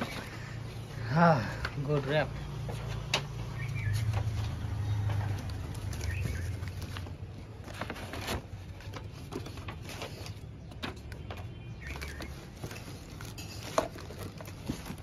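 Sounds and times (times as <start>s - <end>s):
paper packing crinkling: 4.0s - 15.0s.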